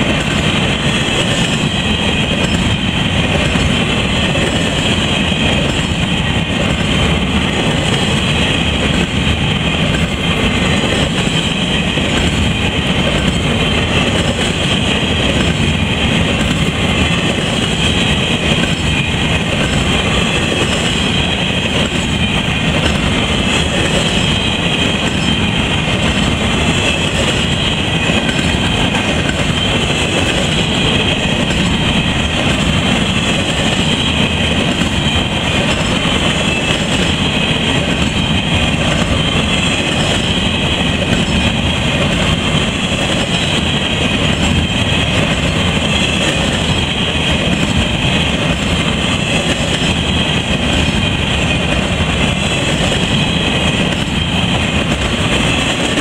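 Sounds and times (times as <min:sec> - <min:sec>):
train wheels rushing on rails: 0:00.0 - 0:56.0.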